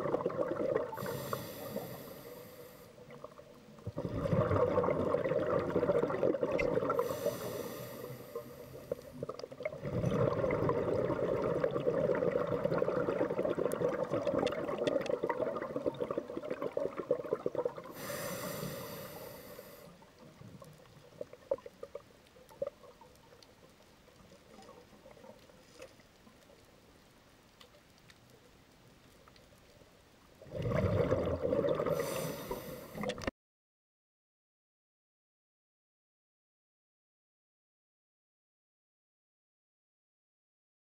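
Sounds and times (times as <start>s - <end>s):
exhaled bubbles rumbling: 0.0s - 1.9s, 3.0s - 7.7s, 8.4s - 18.9s, 30.4s - 33.3s
regulator inhalation hiss: 1.0s - 3.0s, 7.0s - 9.1s, 18.0s - 20.0s, 32.0s - 33.0s
faint ticks: 18.7s - 30.4s.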